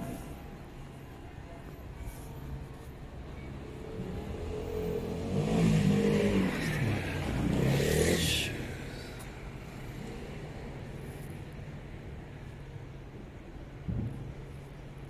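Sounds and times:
vehicle engine revving past: 3.9s - 9.0s.

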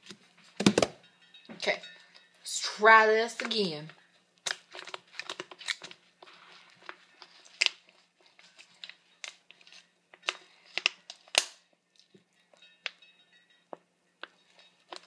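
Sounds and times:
plastic bottle clicking and crackling: 0.0s - 1.0s, 4.4s - 6.0s, 10.2s - 11.6s.

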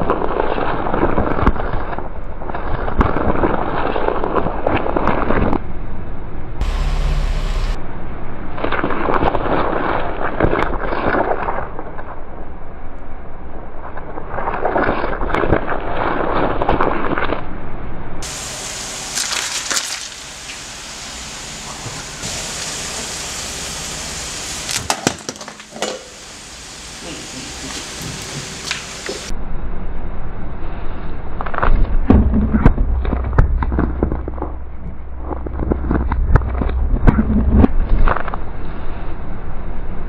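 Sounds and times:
tyre crushing gourd wetly: 19.1s - 20.2s.

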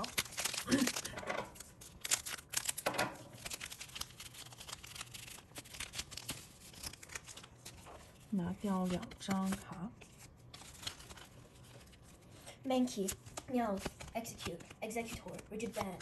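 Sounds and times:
foil wrapper crinkling and tearing: 0.0s - 12.1s.

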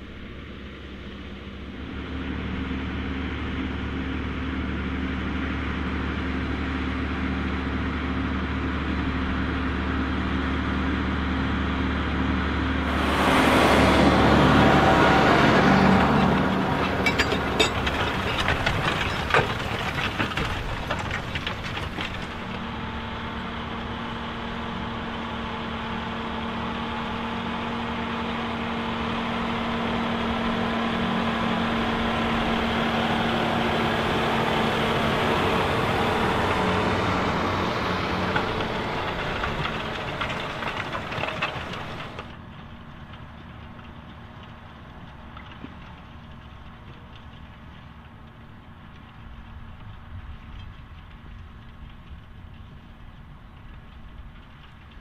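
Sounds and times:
tractor engines running under load: 0.0s - 55.0s
plough clicking and cracking in soil: 12.9s - 23.6s, 31.4s - 55.0s.

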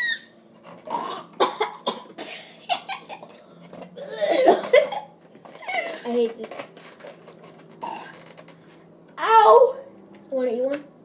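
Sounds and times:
children laughing: 2.4s - 3.4s, 4.2s - 6.0s.

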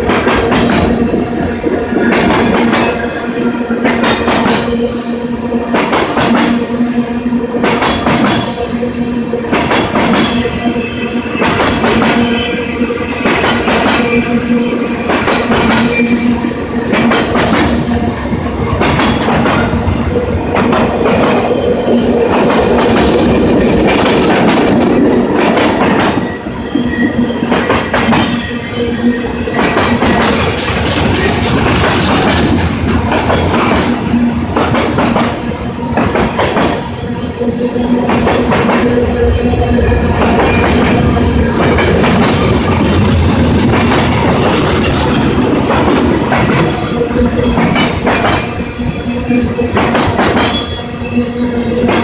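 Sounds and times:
train wheels knocking on rail joints: 0.0s - 4.9s, 5.6s - 28.6s, 29.4s - 50.9s, 51.6s - 52.0s
freight train rumble: 0.0s - 52.0s
crossing bell ringing tone: 36.8s - 45.6s.

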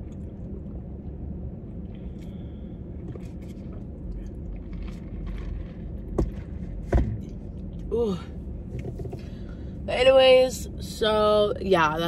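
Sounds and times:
person chewing food: 0.0s - 7.8s
low hum: 0.0s - 12.0s.

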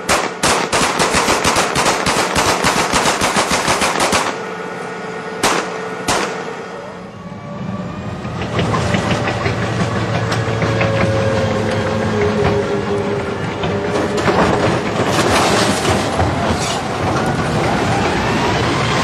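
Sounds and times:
automatic gunfire: 0.0s - 4.5s, 5.4s - 6.6s
vehicle engine rumble: 0.0s - 19.0s.

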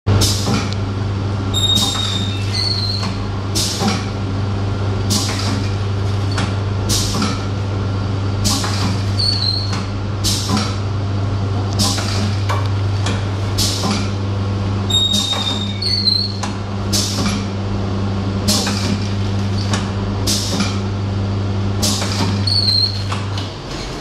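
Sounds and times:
machine low hum: 0.1s - 24.0s
brief squeaks: 1.6s - 3.2s, 14.9s - 16.4s, 22.4s - 23.1s.

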